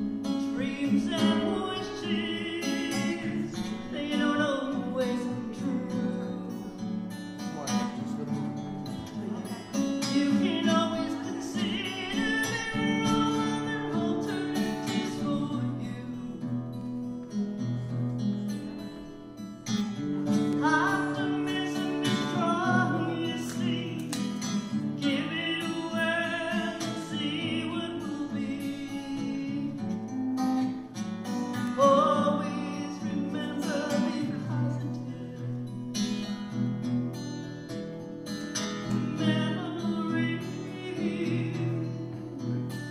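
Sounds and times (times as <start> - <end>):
acoustic guitar strumming: 0.0 - 42.9
woman singing a slow song: 0.5 - 6.7, 10.0 - 16.6, 20.6 - 24.4, 25.0 - 30.2, 31.7 - 35.8, 39.0 - 42.9.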